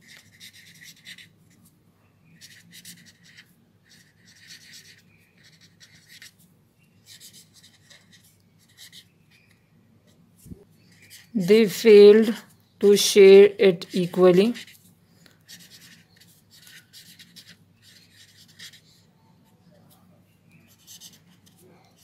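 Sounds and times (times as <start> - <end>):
pen scratching on paper: 0.0 - 1.7, 2.4 - 6.4, 13.8 - 14.8, 15.4 - 19.0, 20.6 - 22.0.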